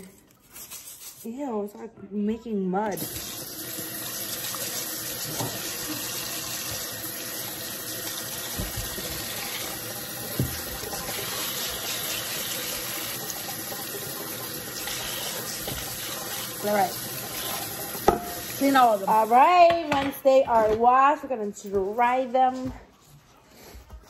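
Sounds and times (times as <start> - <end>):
potatoes scrubbed by hand: 0.0 - 1.7, 4.4 - 19.6
tap running into sink: 3.0 - 18.6.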